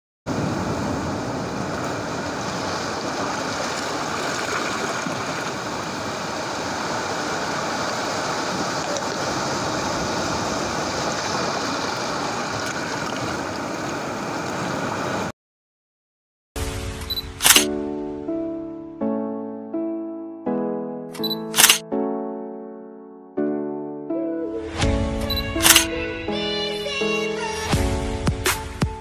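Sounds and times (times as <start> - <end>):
waves washing onto sand: 0.3 - 15.3.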